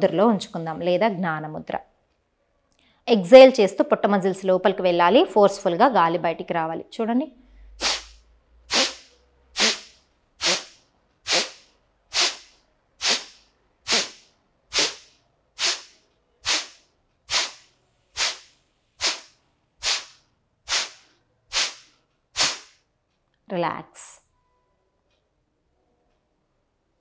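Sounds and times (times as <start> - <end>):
woman's forceful nasal exhalations: 7.6 - 22.8.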